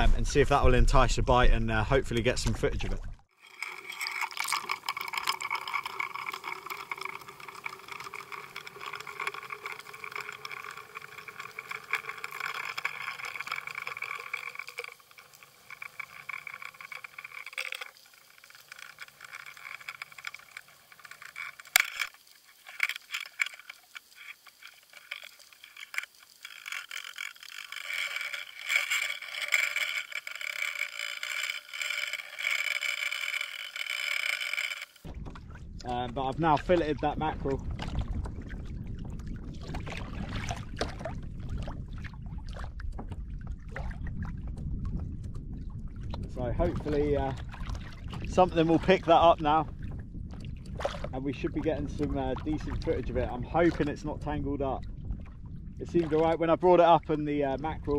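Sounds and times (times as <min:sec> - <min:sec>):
sharp clicks and knocks: 0:02.1 - 0:38.4
rushing water noise: 0:03.0 - 0:42.8.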